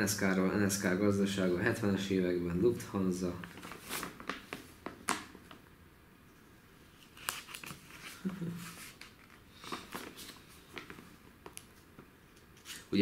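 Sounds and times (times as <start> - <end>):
magazine pages rustling: 3.4 - 5.6, 6.9 - 13.0.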